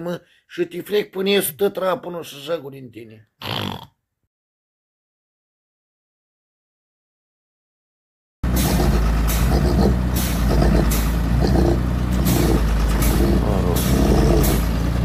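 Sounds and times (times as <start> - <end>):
diesel engine under load: 8.4 - 15.0.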